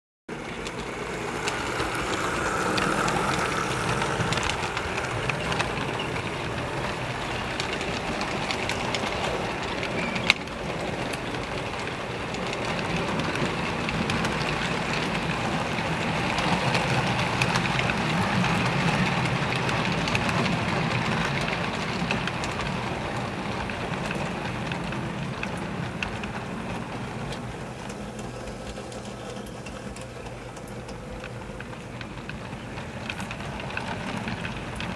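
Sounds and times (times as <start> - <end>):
model train wheels clattering: 0.3 - 34.9.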